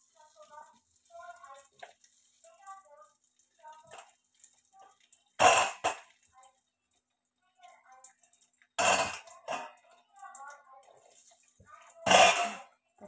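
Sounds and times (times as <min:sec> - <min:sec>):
faint background voices: 0:07.3 - 0:13.0
person coughing: 0:12.1 - 0:12.6.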